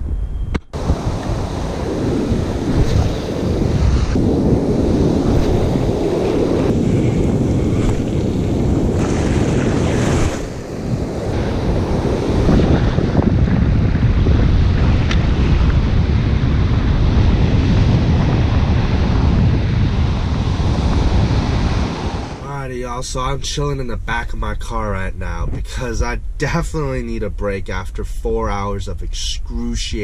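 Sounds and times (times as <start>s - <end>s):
wind buffeting microphone: 0.0s - 28.5s
ocean surf breaking: 0.8s - 23.3s.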